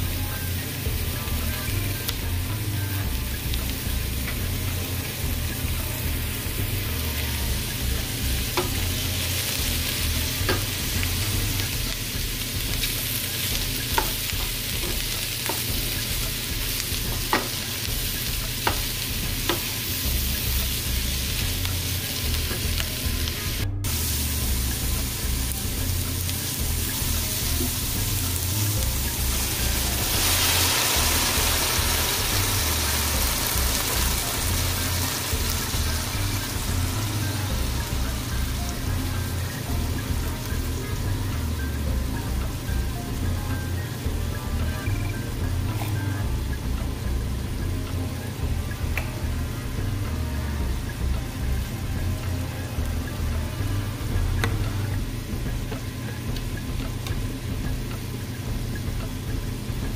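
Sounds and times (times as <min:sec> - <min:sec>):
vegetables sizzling in a skillet: 0:00.0 - 0:59.9
spoon knocking against pan: 0:17.1 - 0:17.6, 0:18.4 - 0:19.7.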